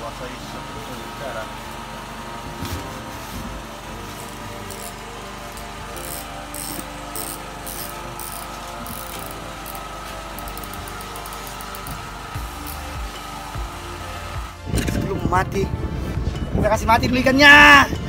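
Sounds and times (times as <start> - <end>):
mechanical hum: 0.0 - 18.0
fishing reel ratchet clicking: 4.6 - 5.0, 5.9 - 12.0.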